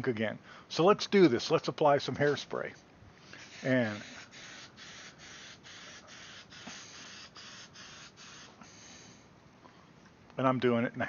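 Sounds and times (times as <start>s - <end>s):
aerosol can spraying hiss: 3.4s - 9.2s.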